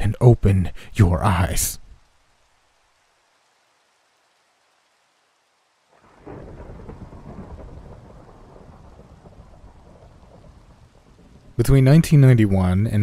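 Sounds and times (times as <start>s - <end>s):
rain: 0.0s - 13.0s
deep rumble of thunder: 6.0s - 11.6s.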